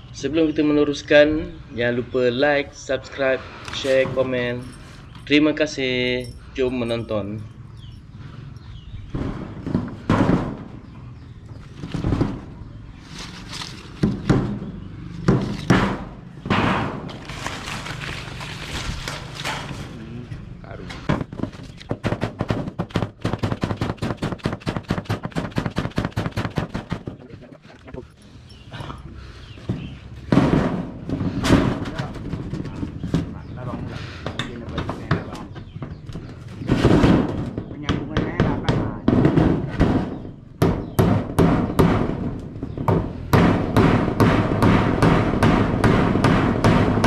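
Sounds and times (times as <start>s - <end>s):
rapid hammering: 14.0s - 17.2s, 21.1s - 27.2s, 36.7s - 47.0s.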